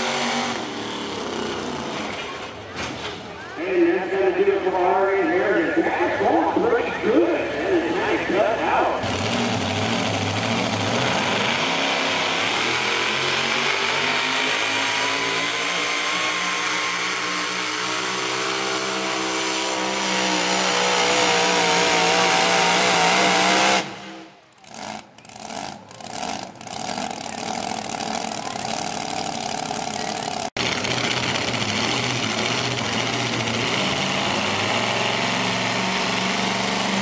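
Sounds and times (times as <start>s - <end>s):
truck engine at full throttle: 0.0s - 37.0s
engine throttle blips: 22.0s - 37.0s.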